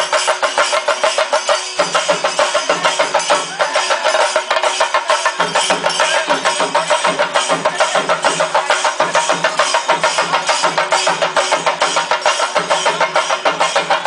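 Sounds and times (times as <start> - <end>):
drums played with sticks: 0.0 - 14.0.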